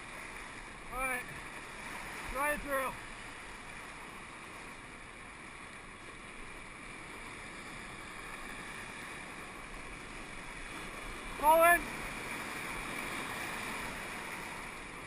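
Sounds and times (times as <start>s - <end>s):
whitewater rapids rushing: 0.0s - 4.0s, 7.9s - 15.0s.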